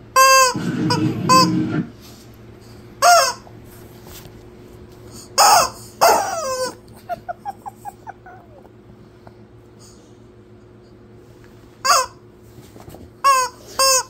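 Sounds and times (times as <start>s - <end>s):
rubber dog toy squawking: 0.2s - 1.8s, 3.0s - 3.4s, 5.4s - 6.8s, 11.8s - 12.2s, 13.2s - 14.0s.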